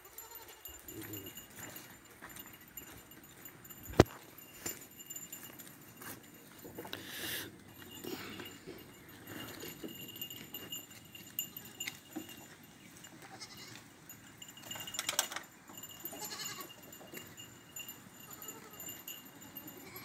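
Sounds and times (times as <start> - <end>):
goats bleating: 0.0 - 1.3, 13.2 - 13.8, 16.1 - 16.8.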